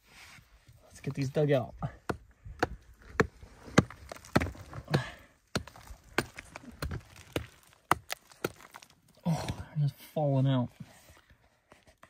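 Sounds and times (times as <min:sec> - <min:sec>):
rock pick striking clay wall: 0:01.8 - 0:09.7.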